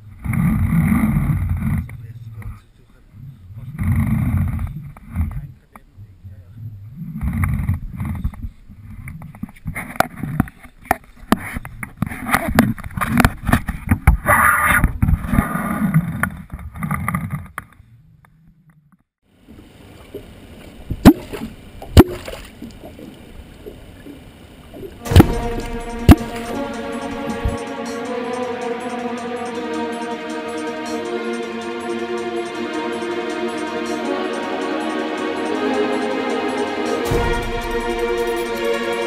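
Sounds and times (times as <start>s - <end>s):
water sloshing around boat: 19.4s - 27.5s
music: 25.0s - 39.0s.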